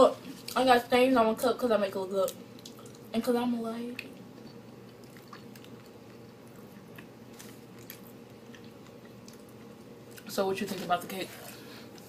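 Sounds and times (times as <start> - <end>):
people chewing: 4.0 - 10.3.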